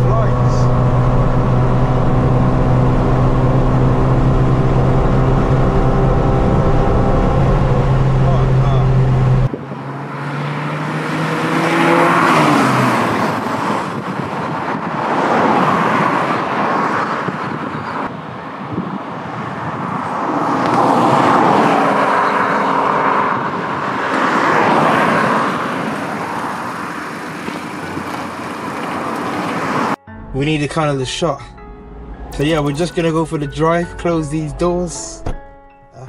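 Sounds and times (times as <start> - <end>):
engine humming: 0.0 - 9.6, 25.4 - 35.8
cars passing on road: 0.0 - 30.4, 31.6 - 35.7.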